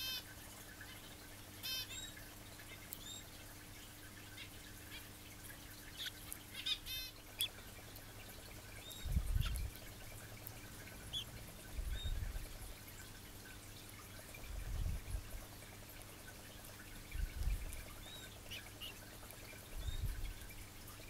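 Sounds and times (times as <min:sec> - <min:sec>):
canary chirping: 0:00.0 - 0:00.2, 0:01.6 - 0:03.3, 0:05.8 - 0:07.6, 0:08.8 - 0:09.8, 0:10.4 - 0:12.2, 0:17.0 - 0:20.4
canary trill: 0:01.6 - 0:03.3, 0:05.8 - 0:07.6.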